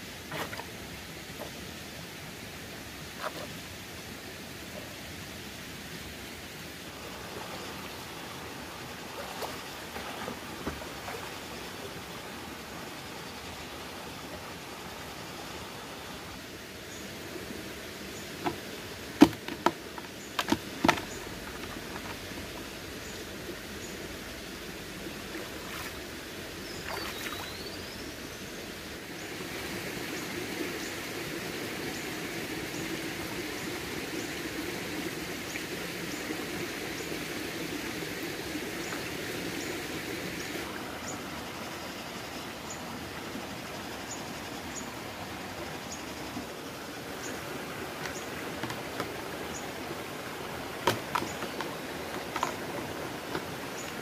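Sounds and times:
rocky stream running: 0.0s - 54.0s
plastic basin knocking on rocks: 19.2s - 21.1s, 48.6s - 49.2s, 50.8s - 52.7s.

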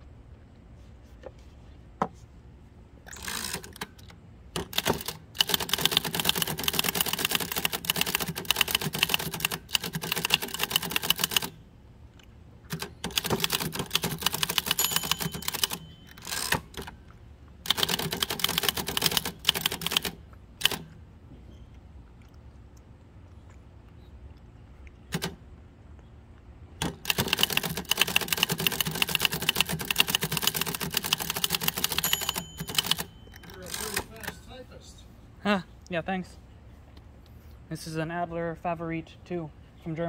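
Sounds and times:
manual typewriter keystrokes: 3.1s - 11.6s, 12.7s - 17.0s, 17.6s - 21.0s, 25.1s - 25.4s, 26.8s - 34.4s.

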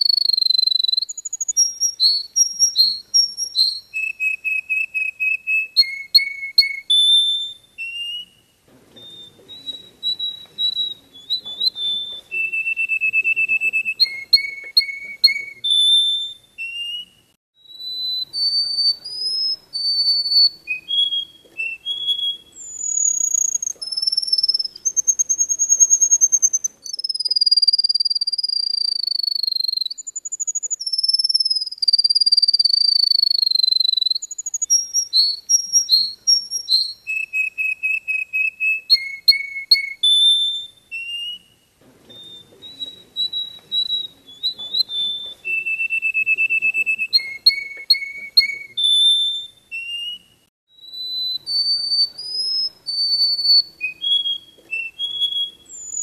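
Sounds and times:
finch singing: 0.0s - 56.0s.

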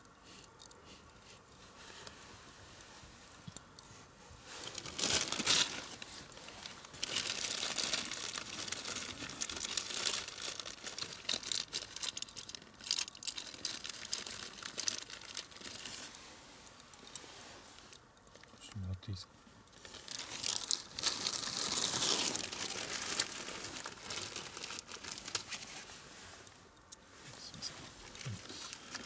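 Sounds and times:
packaging crinkling and rustling: 4.4s - 18.5s, 19.7s - 26.6s, 27.6s - 29.0s.

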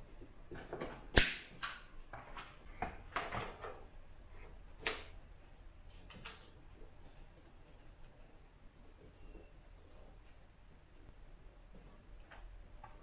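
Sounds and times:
small parts clicking and knocking: 5.9s - 6.6s.

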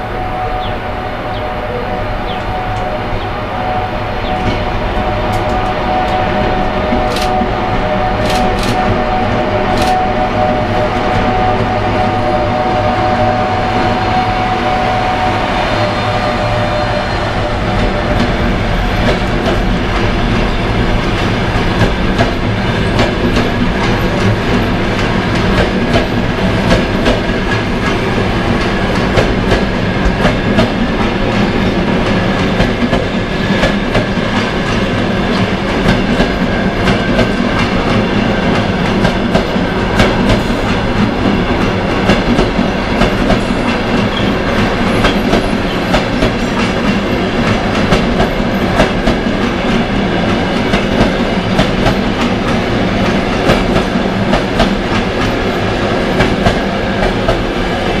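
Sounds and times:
train wheels clattering over rail joints: 17.8s - 57.5s.

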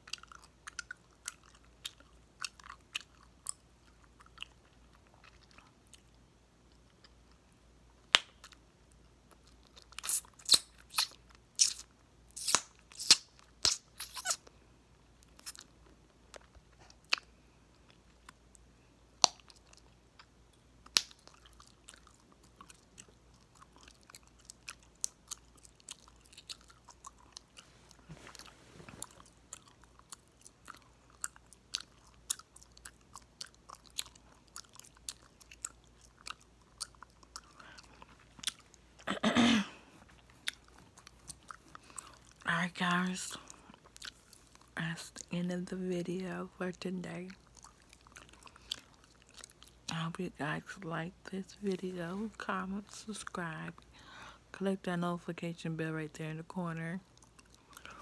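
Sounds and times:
gum chewing snaps and pops: 0.0s - 7.4s, 8.0s - 14.4s, 19.2s - 39.1s.

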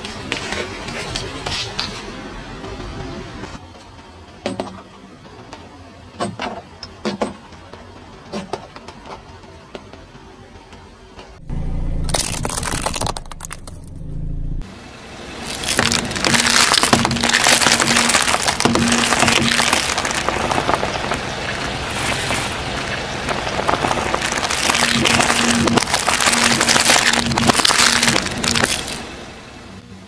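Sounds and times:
low steady hum: 9.0s - 30.0s
eggshells cracking and crunching: 12.1s - 13.9s, 15.4s - 29.1s.

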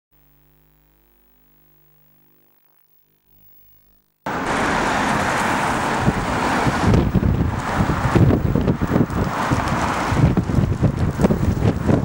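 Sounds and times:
wind noise on microphone: 4.3s - 12.0s.

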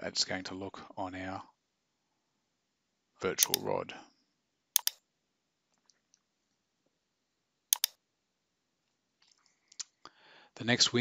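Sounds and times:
mouse button clicks: 3.4s - 3.6s, 4.8s - 5.0s, 7.8s - 8.0s.

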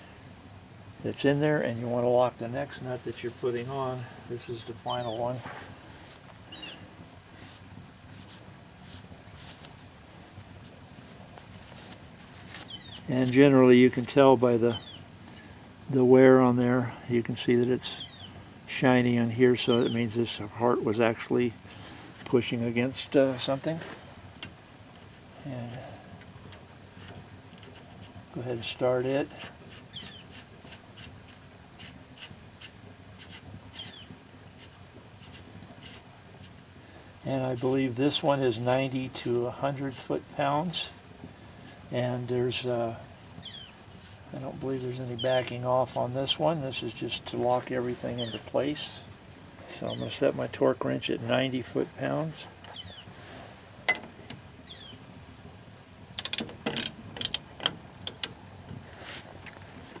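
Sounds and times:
small bird chirping: 6.5s - 6.8s, 12.6s - 13.1s, 14.7s - 15.0s, 18.0s - 18.3s, 29.9s - 30.4s, 33.7s - 34.1s, 43.4s - 43.8s, 52.7s - 53.1s, 54.6s - 55.0s.

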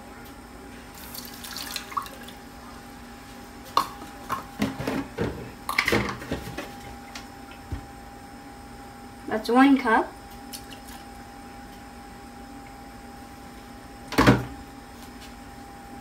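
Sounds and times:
milk pouring into saucepan: 1.0s - 2.4s.

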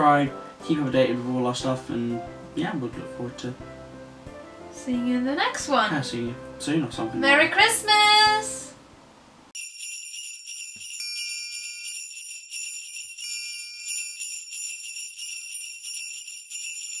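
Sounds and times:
sleigh bells jingling: 9.6s - 17.0s.

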